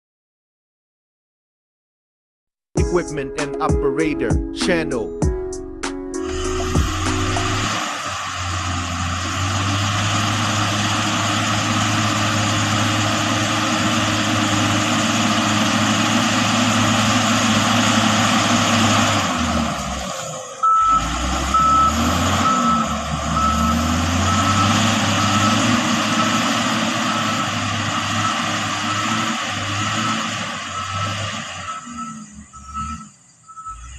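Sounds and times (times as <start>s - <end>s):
diesel engine running: 5.4s - 33.9s
reversing alarm beeping: 20.6s - 33.9s.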